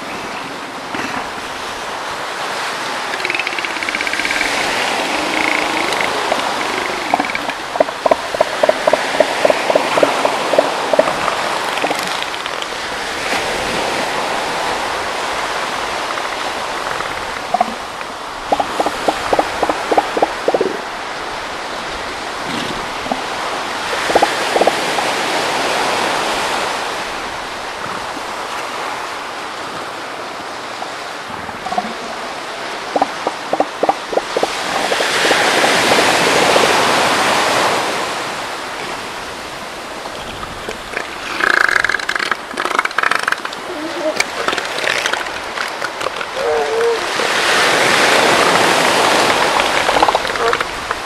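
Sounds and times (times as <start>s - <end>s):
surf washing ashore: 0.0s - 51.0s
elephant seals pulsed calls: 2.8s - 12.9s, 15.3s - 20.9s, 22.4s - 25.9s, 31.6s - 37.6s, 40.9s - 51.0s.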